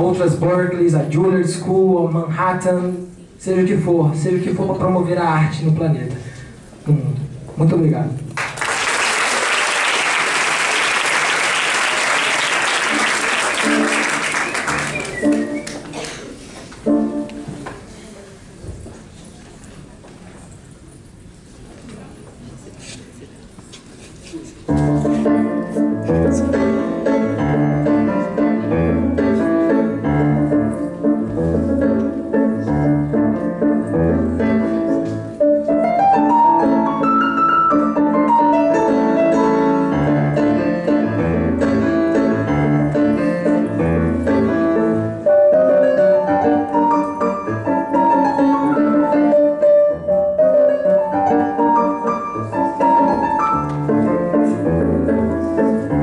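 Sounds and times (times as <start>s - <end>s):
solo piano music: 12.7s - 15.7s, 16.8s - 17.6s, 24.7s - 56.0s.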